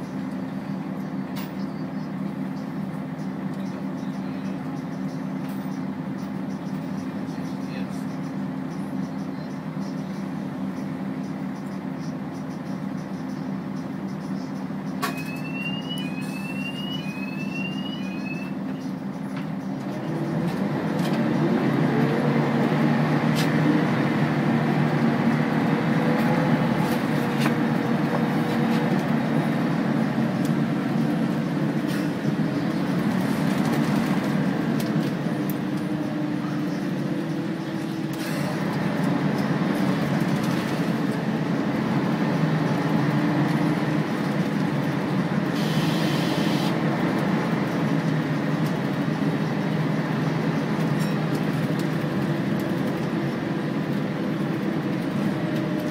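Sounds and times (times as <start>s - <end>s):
bus diesel engine: 0.0s - 55.9s
short rising electronic beeps: 15.1s - 18.6s.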